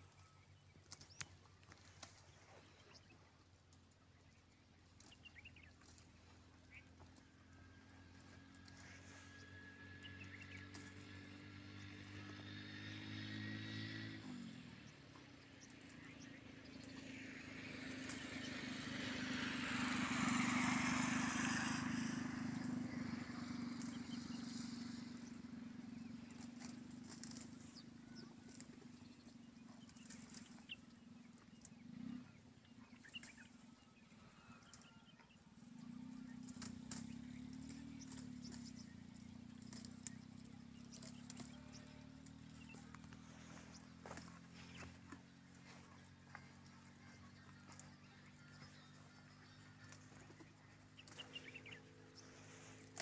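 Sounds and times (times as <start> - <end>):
low engine hum: 0.0 - 53.0
vehicle passing on road: 0.0 - 53.0.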